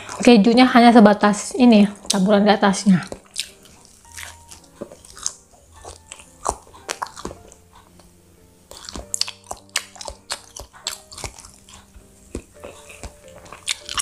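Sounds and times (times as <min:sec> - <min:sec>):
person chewing crunchy bread: 0:03.0 - 0:14.0.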